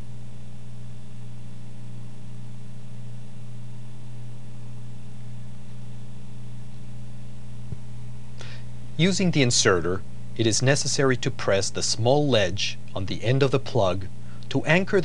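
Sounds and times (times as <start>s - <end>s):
steady low hum: 0.0s - 15.0s
faint hiss: 7.7s - 15.0s.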